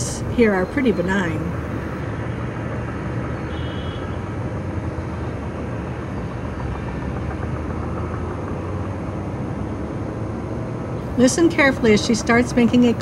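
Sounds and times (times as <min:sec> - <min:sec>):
low background rumble: 0:00.0 - 0:05.6, 0:11.0 - 0:13.0.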